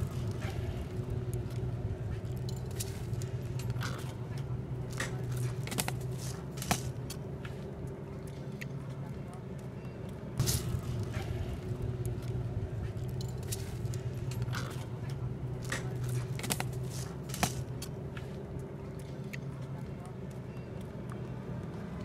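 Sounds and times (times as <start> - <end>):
traffic and engine rumble: 0.0 - 22.0.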